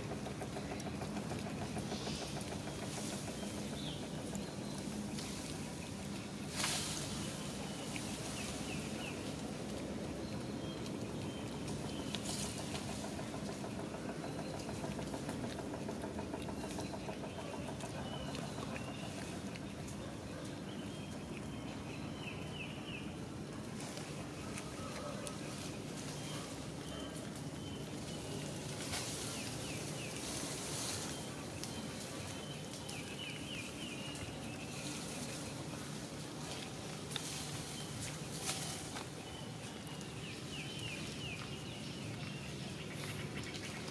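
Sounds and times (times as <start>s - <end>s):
low mechanical hum: 0.0s - 43.9s.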